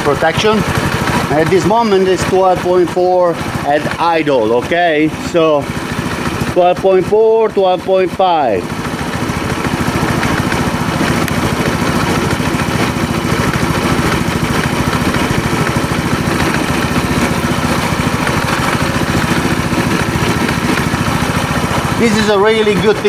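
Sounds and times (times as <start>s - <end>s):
scooter engine idling: 0.0s - 23.0s.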